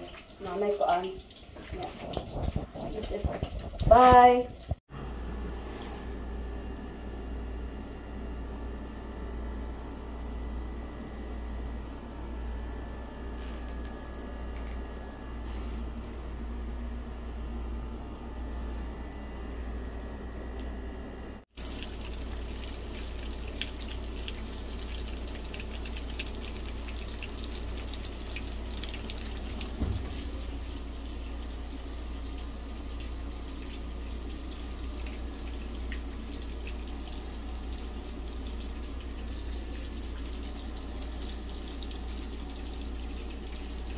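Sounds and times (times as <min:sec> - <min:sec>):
low oven hum: 0:00.0 - 0:43.9
vegetables sizzling and popping: 0:21.6 - 0:42.9
thump: 0:29.8 - 0:30.2.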